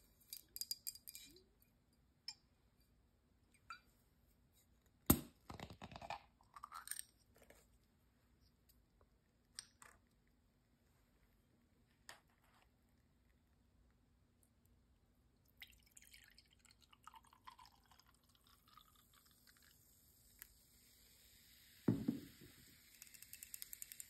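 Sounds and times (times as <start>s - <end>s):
carbonation fizzing hiss: 15.6s - 24.0s.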